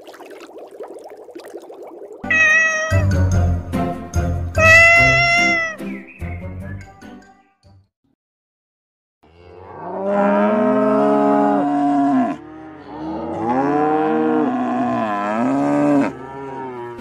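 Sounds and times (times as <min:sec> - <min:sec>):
cow mooing: 0:09.2 - 0:17.0.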